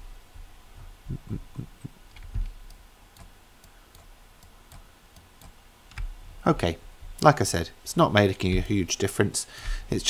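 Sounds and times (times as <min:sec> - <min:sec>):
computer mouse and keyboard clicks: 0:02.1 - 0:06.1.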